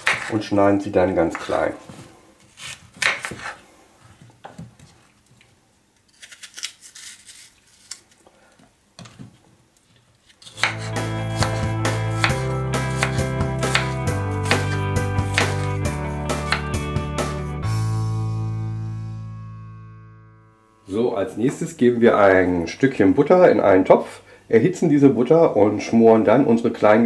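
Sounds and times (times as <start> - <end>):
knife cutting on wooden board: 0.0 - 0.3, 10.4 - 15.8, 16.4 - 16.8
background music: 10.5 - 21.1.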